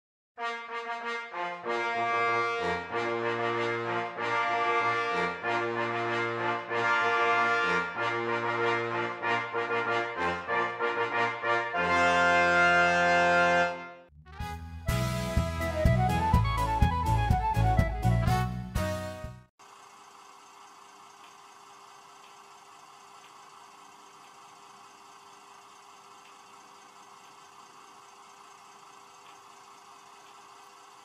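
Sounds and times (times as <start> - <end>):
brass intro music: 0.4 - 19.5
different music: 14.2 - 19.4.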